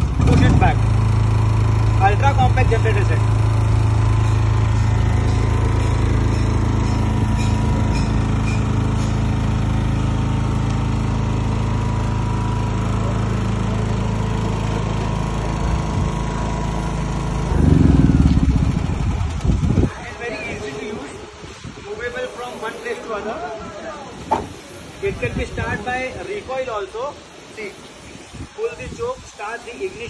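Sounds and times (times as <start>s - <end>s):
rough engine burst: 0.0s - 7.1s, 16.6s - 19.9s
petrol generator running: 0.0s - 19.9s.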